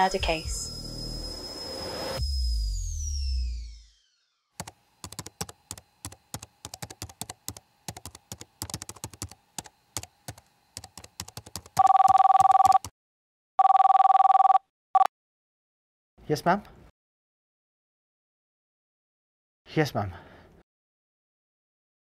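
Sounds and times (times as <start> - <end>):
keyboard typing clicks: 4.6 - 12.9
telephone two-tone ringing: 11.8 - 12.9, 13.6 - 15.1.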